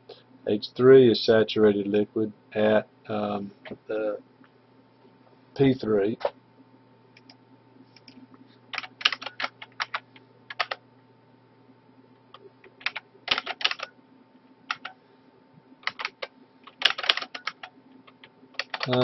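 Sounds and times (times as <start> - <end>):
faint steady hum: 0.0 - 19.0
keyboard typing: 8.0 - 10.8, 12.3 - 13.9, 14.7 - 15.0, 15.8 - 19.0.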